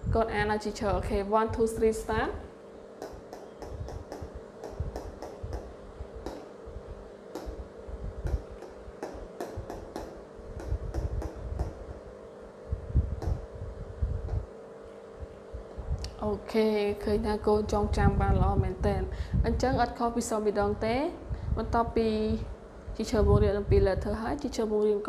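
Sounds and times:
low hum: 0.0s - 24.6s
marker tapping on whiteboard: 3.0s - 6.5s, 7.3s - 7.6s, 8.2s - 11.9s, 13.2s - 13.4s.

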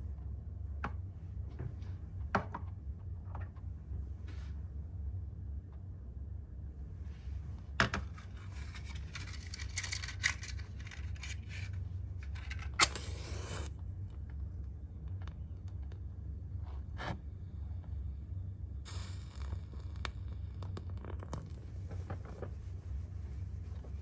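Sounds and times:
low steady hum: 0.0s - 24.0s
objects clicking and rattling: 8.0s - 13.0s
match struck and flaring: 12.7s - 13.7s, 18.9s - 21.6s.

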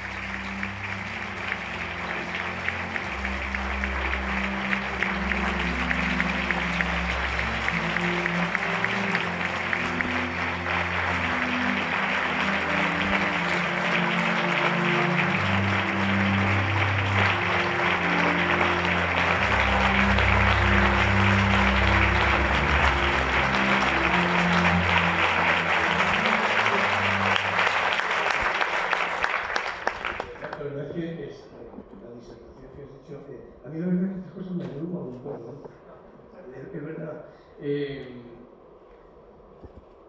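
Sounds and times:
background music with low notes: 0.0s - 29.8s
audience applauding: 0.0s - 31.0s.

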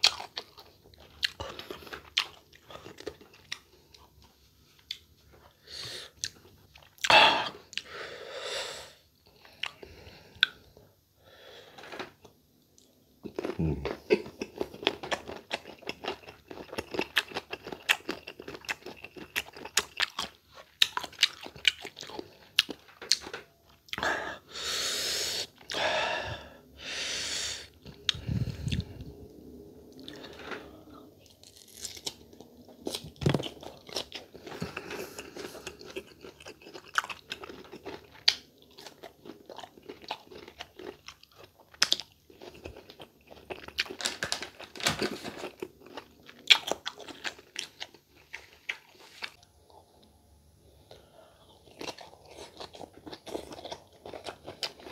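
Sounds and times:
crunching and chewing mango: 0.0s - 7.9s, 12.2s - 24.1s, 29.9s - 50.1s, 50.9s - 54.9s
long hissing sounds: 24.5s - 25.5s.

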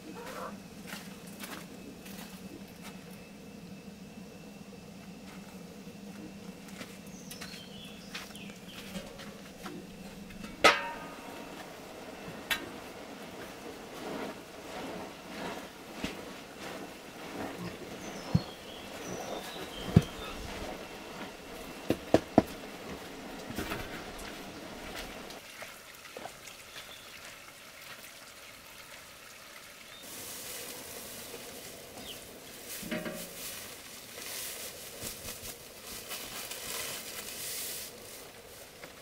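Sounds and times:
paddle scraping and stirring mash: 8.3s - 25.8s, 30.0s - 39.0s
wooden paddle knocking on metal pot: 10.5s - 11.2s
hiss: 30.0s - 39.0s.

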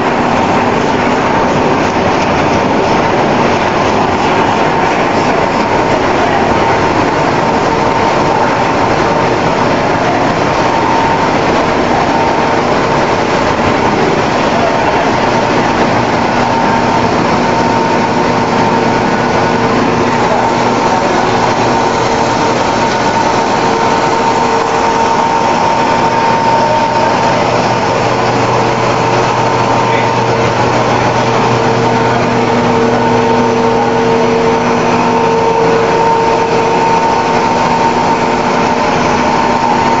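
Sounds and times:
machinery motor humming and whining: 0.0s - 40.0s.

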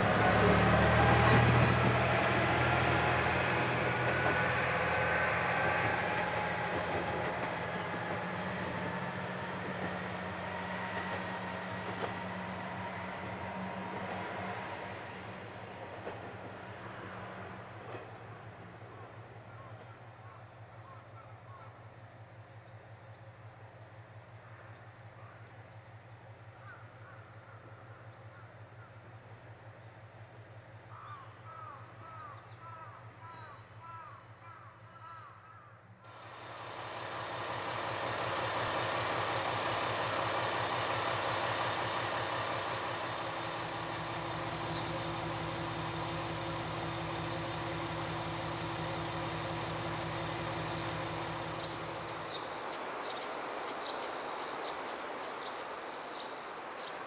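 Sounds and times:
diesel railcar engine idling: 0.0s - 57.0s
crows cawing: 26.6s - 27.9s, 30.9s - 35.8s.

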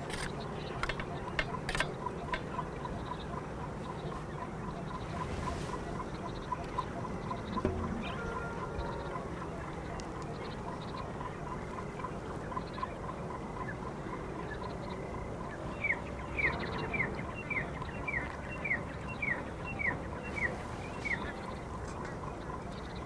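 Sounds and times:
background noise: 0.0s - 23.0s
bird calling falling notes: 4.9s - 10.6s.

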